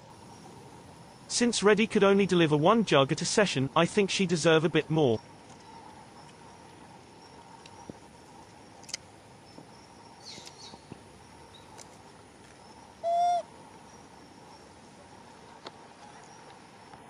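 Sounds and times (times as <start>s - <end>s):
monkey coo call: 13.0s - 13.5s.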